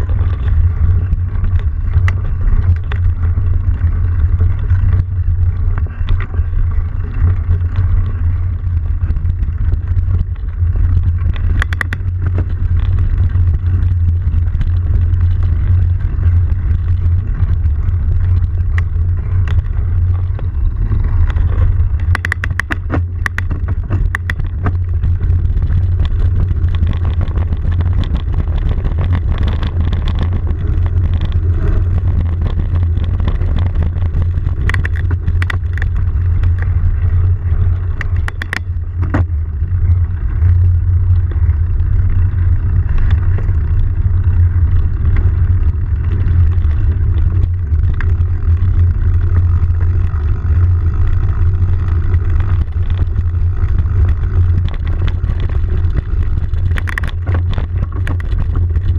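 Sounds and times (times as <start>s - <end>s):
low wind rumble: 0.0s - 58.9s.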